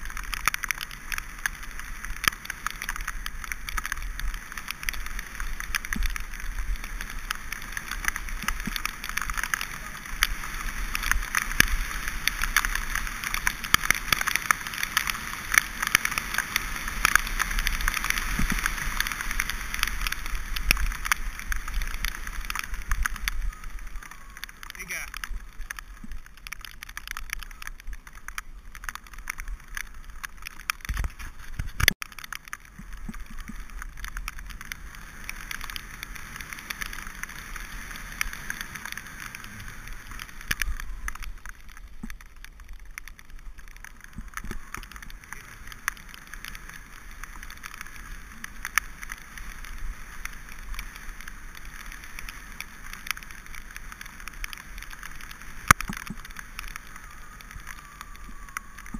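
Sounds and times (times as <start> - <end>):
tyres hissing on wet surface: 0.0 - 31.5, 32.4 - 58.9
bike rattling and clicking: 0.0 - 58.9.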